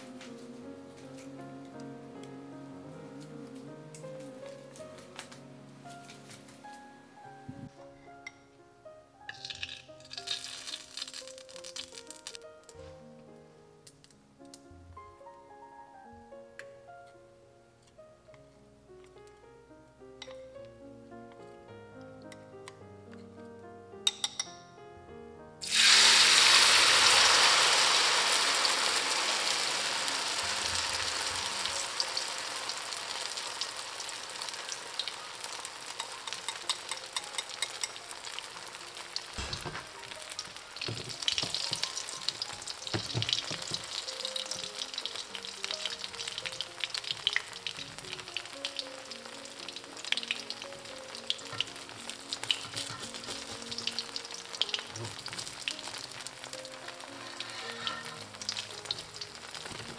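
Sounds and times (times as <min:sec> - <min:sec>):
batter sizzling in hot oil: 0:09.4 - 0:12.4, 0:25.6 - 0:59.9.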